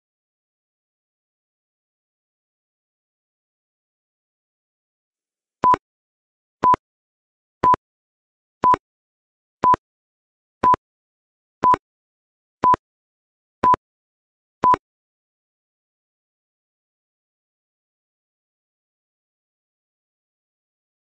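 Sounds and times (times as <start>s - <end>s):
countdown timer beeps: 5.6s - 5.8s.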